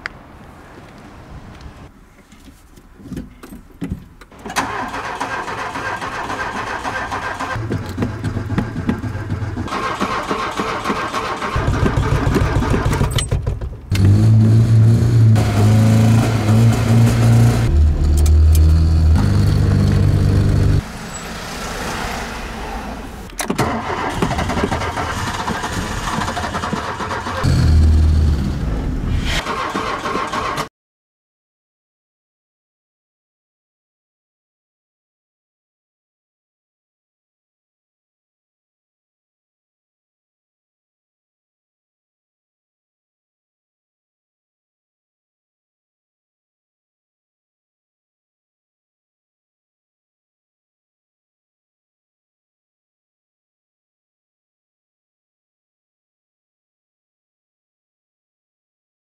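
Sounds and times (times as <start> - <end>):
car starter cranking engine: 4.4 - 13.3, 23.3 - 28.3, 29.4 - 30.7
car engine running at changing revs: 13.9 - 23.2.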